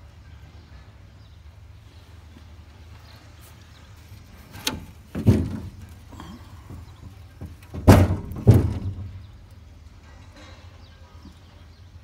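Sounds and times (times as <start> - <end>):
dull knocks: 4.6 - 5.9, 6.7 - 9.2.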